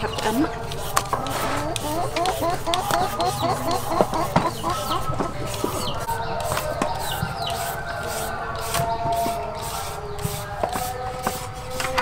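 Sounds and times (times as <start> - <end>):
chickens clucking: 0.0 - 12.0.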